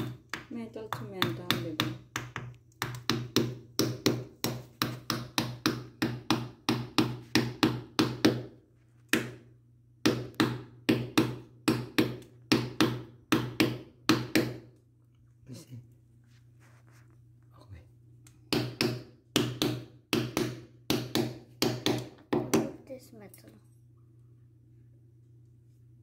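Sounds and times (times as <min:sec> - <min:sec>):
hammer driving nail into wood: 0:01.2 - 0:09.4, 0:10.0 - 0:14.7, 0:18.5 - 0:22.7.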